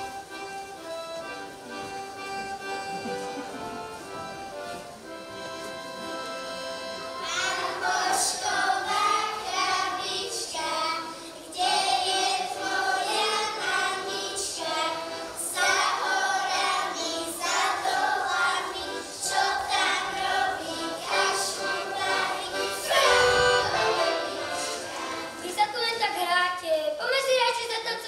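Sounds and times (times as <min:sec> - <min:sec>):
children singing in chorus: 0:07.2 - 0:25.4.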